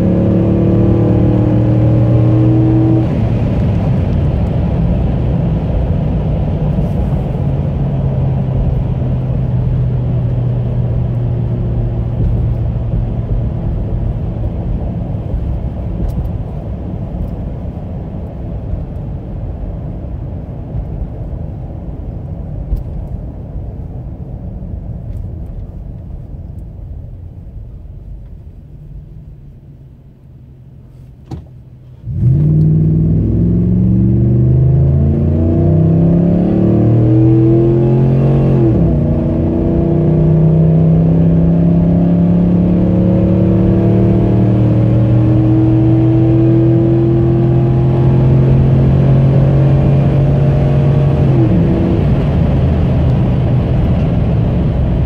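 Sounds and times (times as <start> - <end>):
truck engine accelerating: 0.0 - 18.5, 31.7 - 55.0.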